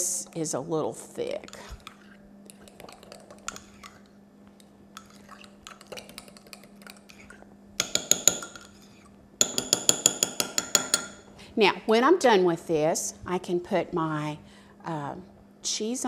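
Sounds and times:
spoon stirring soup in a mug: 1.3 - 11.3
spoon clinking against mug: 7.8 - 8.7.

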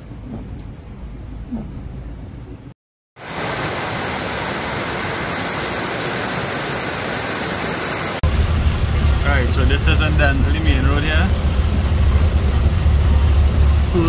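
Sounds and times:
low rumble inside moving car: 0.0 - 2.8, 8.2 - 14.0
floodwater rushing: 3.2 - 14.0.

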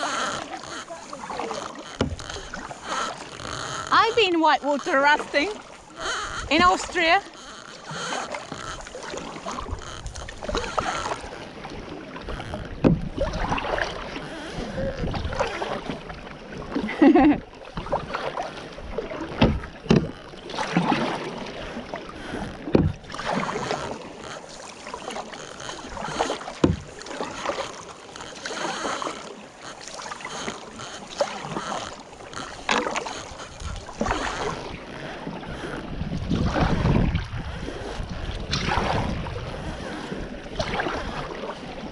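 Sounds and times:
kayak paddle strokes splashing: 0.0 - 41.9.

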